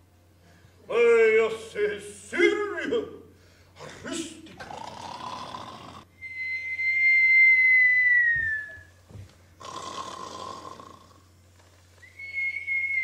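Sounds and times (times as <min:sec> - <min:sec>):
rasping snore: 0:04.6 - 0:06.1, 0:09.6 - 0:11.3
person whistling: 0:06.2 - 0:08.9, 0:12.0 - 0:13.0.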